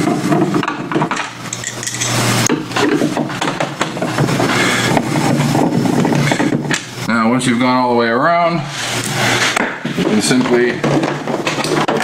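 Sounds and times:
metal screws clinking: 1.5s - 2.2s.

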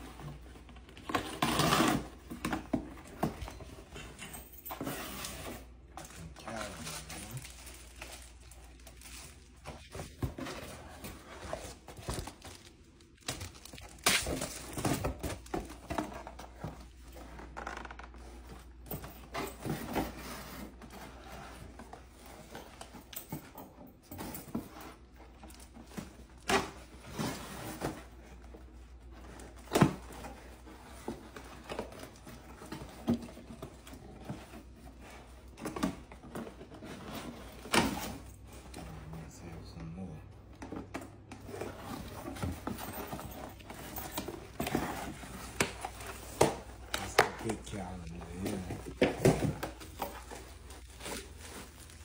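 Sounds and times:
cardboard box and paper rustling: 40.7s - 52.0s.

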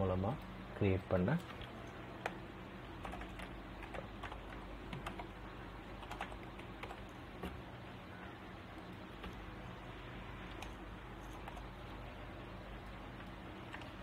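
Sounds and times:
keyboard typing clicks: 3.0s - 5.3s, 6.0s - 7.6s.

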